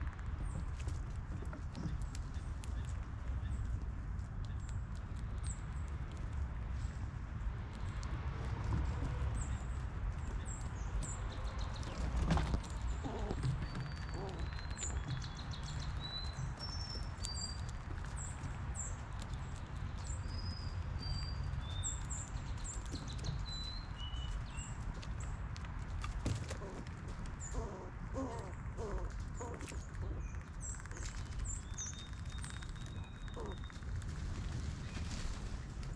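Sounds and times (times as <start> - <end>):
squirrel rummaging in peanuts: 8.8 - 20.4, 21.0 - 35.9
songbirds chirping: 8.8 - 35.9.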